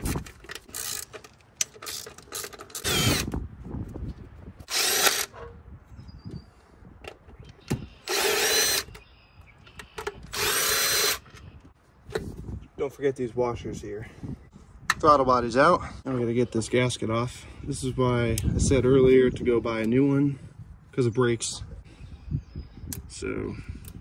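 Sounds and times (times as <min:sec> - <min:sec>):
tool and bolts clinking: 0:00.0 - 0:03.3
power driver motor whine: 0:02.8 - 0:03.4, 0:08.0 - 0:09.0, 0:10.2 - 0:11.4.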